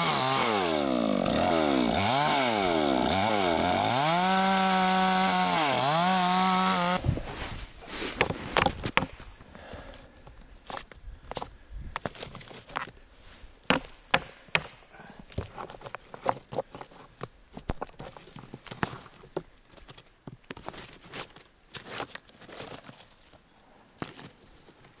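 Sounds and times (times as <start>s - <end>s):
hatchet chopping wood: 8.2s - 9.3s, 13.7s - 14.9s
wood chunks knocked loose: 8.2s - 9.4s.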